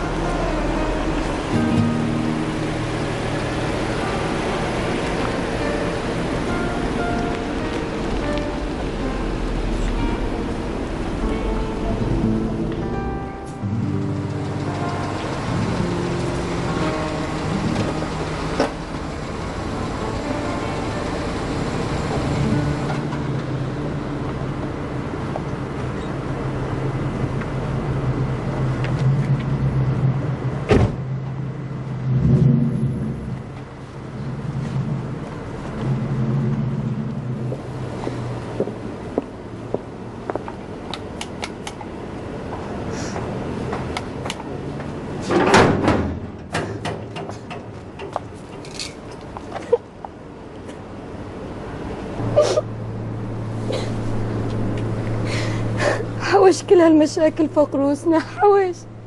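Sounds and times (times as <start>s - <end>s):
car engine idling: 0.0s - 45.3s, 46.2s - 59.0s
metal gate clattering: 45.2s - 49.1s
gate clicks and knocks: 45.3s - 48.9s.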